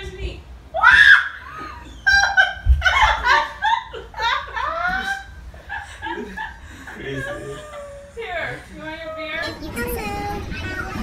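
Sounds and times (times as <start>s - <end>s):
women laughing: 1.4s - 9.4s.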